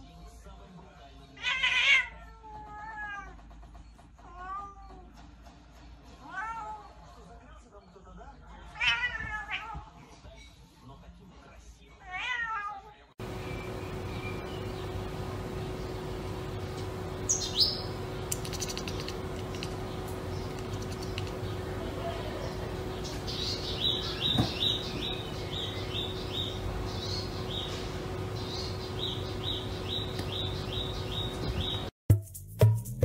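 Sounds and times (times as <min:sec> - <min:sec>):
small bird chirping: 0:13.2 - 0:31.9
steady low hum: 0:13.2 - 0:31.9.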